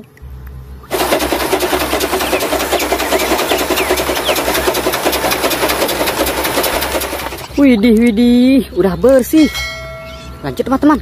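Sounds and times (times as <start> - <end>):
steam locomotive running on track: 0.9 - 7.6.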